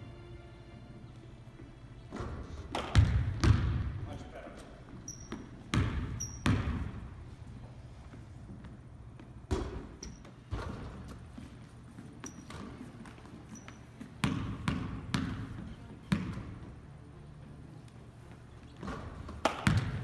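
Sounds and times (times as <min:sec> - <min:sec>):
basketball bouncing on wood floor: 0:02.1 - 0:04.0, 0:04.9 - 0:07.1, 0:08.5 - 0:11.4, 0:12.2 - 0:16.7, 0:18.7 - 0:20.0.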